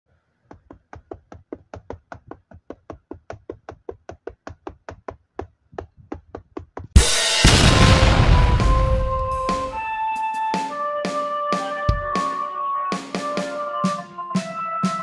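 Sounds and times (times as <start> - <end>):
rapid light knocking: 0.4 - 7.0.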